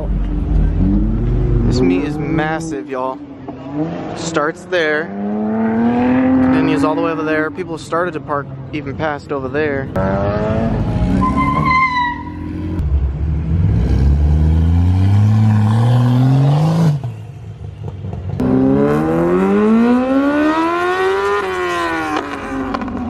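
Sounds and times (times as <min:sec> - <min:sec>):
car engine accelerating hard: 0:03.4 - 0:07.5, 0:09.9 - 0:17.2, 0:18.0 - 0:23.0.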